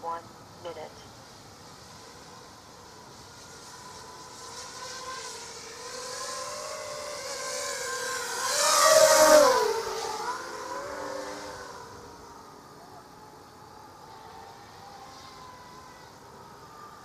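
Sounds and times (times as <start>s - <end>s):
quadcopter motors whining: 0.3s - 17.0s.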